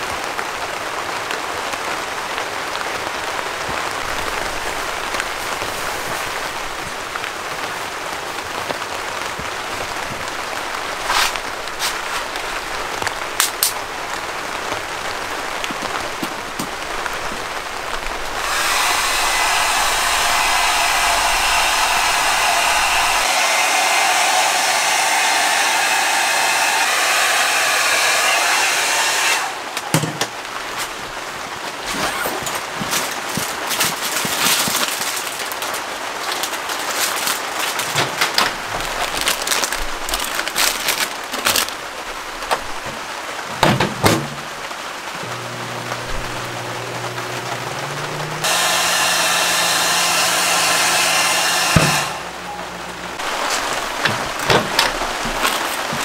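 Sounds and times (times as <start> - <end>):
rain pattering on tent fabric: 0.0 - 18.5, 29.6 - 48.4, 52.7 - 56.0
loud steady hiss: 0.0 - 31.8, 33.5 - 56.0.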